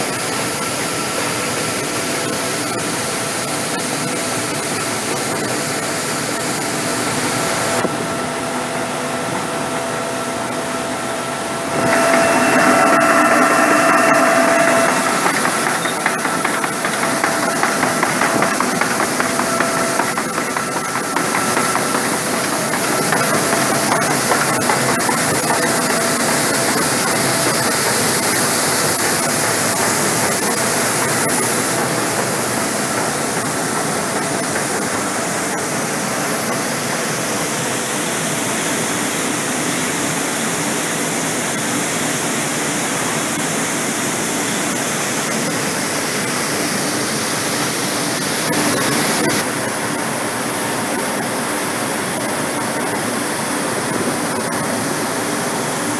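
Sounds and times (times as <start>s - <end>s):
faint steady whines: 11.4s - 24.7s.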